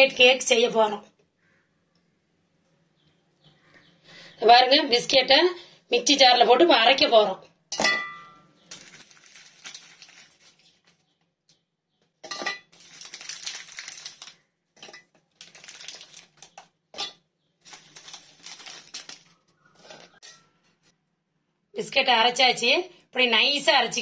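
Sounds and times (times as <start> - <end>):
biscuits clattering in steel jar: 7.7 - 10.6, 12.2 - 20.6.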